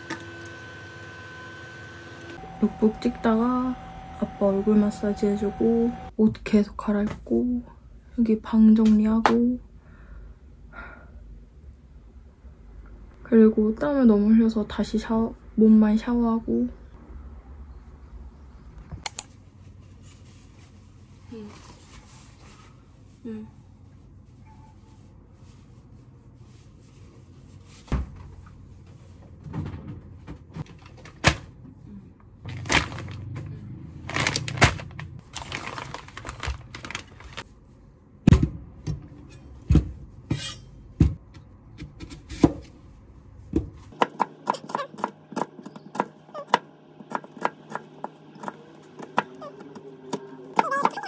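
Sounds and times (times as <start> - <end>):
plastic packet rustling: 32.5 - 33.4, 34.0 - 37.5
knife chopping on cutting board: 44.0 - 51.0.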